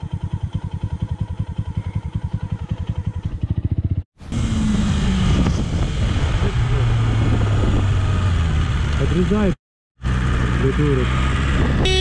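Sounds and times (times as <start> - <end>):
motorcycle engine idling: 0.0 - 4.0
motorcycle cruising: 0.0 - 12.0
wind noise: 4.8 - 8.4, 11.4 - 12.0.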